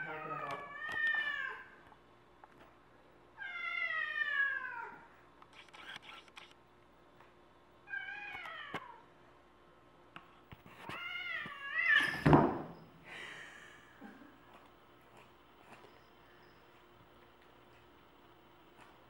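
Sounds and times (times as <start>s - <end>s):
cat meowing and yowling: 3.4s - 5.0s.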